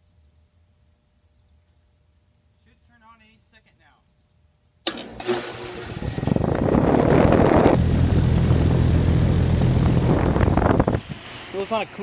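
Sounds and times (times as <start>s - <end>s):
air conditioner rushing: 4.9s - 12.0s
compressor low hum: 4.9s - 12.0s.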